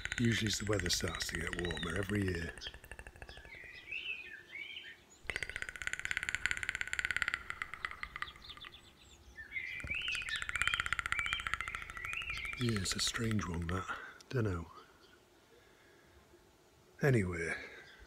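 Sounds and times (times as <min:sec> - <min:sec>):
bird rattling trill: 0:00.0 - 0:04.0, 0:05.2 - 0:09.0, 0:09.6 - 0:13.8
songbirds chirping: 0:00.0 - 0:18.0.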